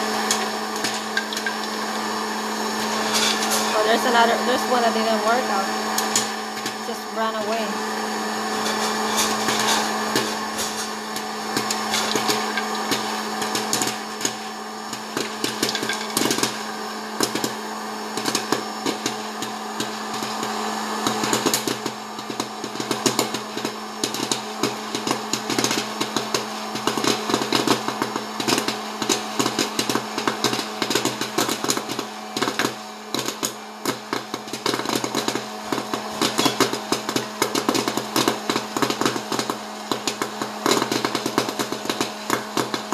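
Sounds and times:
fan motor humming: 0.0 - 22.8
popcorn kernels popping: 0.1 - 5.2, 5.8 - 7.5, 8.5 - 42.9.

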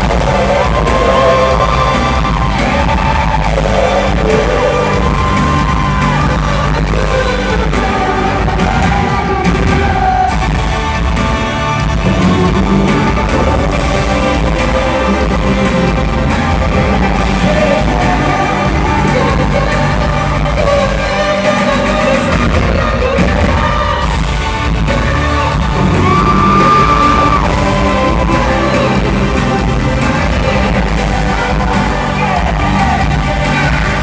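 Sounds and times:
live pop band with male singer: 0.0 - 34.0.

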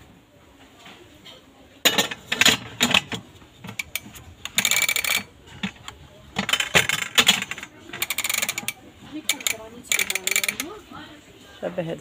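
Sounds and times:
metal pots and lids clattering: 1.8 - 8.7.

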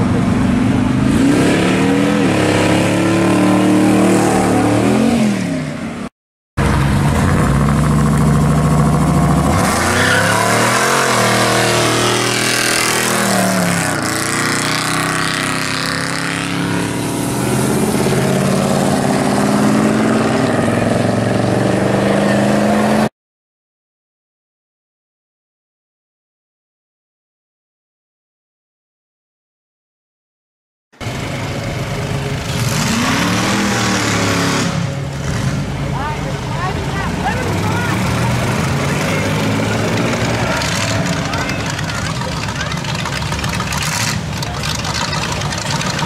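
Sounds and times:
car engines revving: 0.0 - 23.1, 31.0 - 46.0
tyres squealing: 9.7 - 11.5, 36.6 - 46.0.

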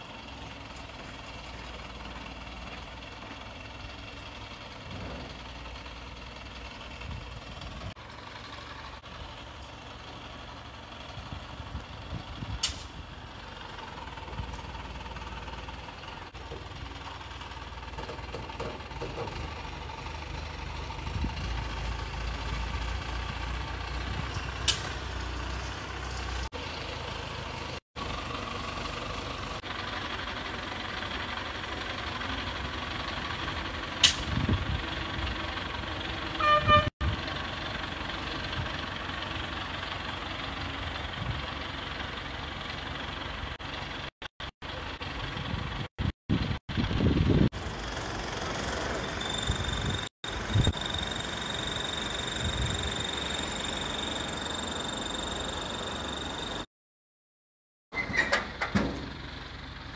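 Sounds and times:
crane engine rumbling: 0.0 - 56.7, 57.9 - 59.9
short horn toot: 36.4 - 36.9.

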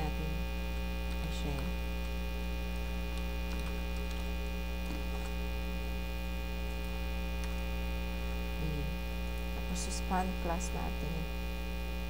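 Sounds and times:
electrical mains hum: 0.0 - 12.0.

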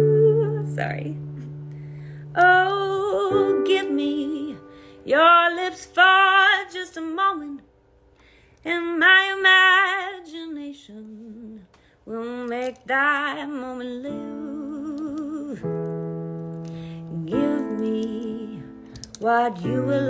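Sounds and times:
held instrumental chords: 0.0 - 6.5.

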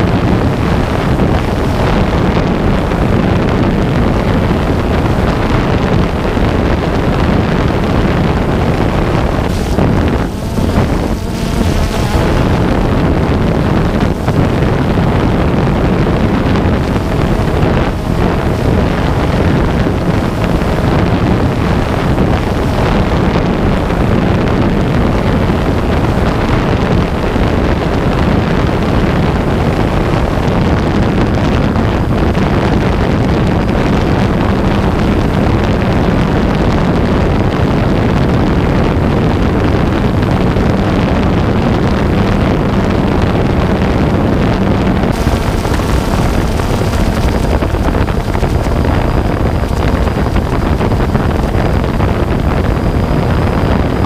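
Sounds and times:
faint steady hum: 0.0 - 54.0
wind rushing over microphone: 0.0 - 54.0
drone rotors running: 7.5 - 26.5, 45.1 - 53.6.

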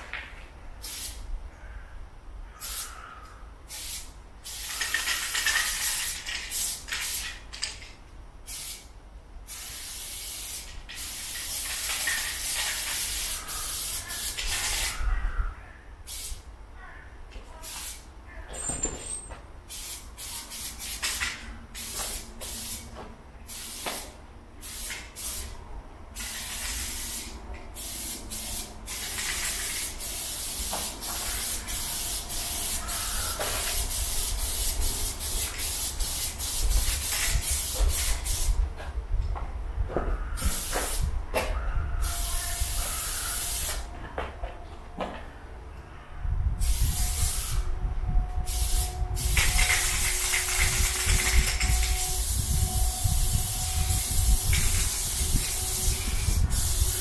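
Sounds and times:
spray paint can hissing: 0.8 - 1.2, 2.6 - 2.9, 3.7 - 8.9, 9.5 - 15.0, 16.1 - 16.4, 17.6 - 18.1, 19.7 - 38.6, 40.4 - 41.1, 42.0 - 43.9, 46.6 - 47.7, 48.4 - 57.0.

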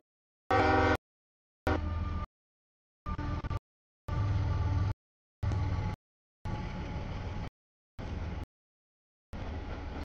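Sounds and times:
locomotive air horn: 0.5 - 1.0, 1.6 - 2.2
passing train rushing noise: 9.4 - 10.0.

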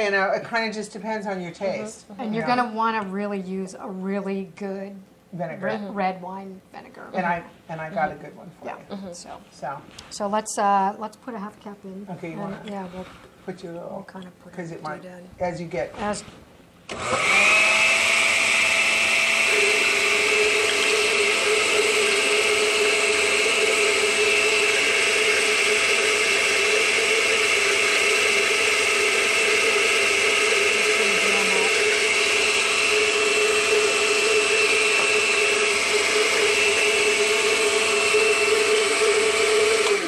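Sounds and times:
blender running with whine: 16.9 - 40.0.

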